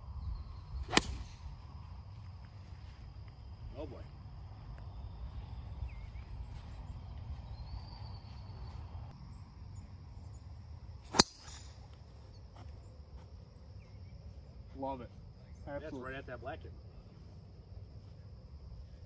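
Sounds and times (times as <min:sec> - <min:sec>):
golf driver striking ball: 0:00.9 - 0:01.3, 0:11.1 - 0:11.7.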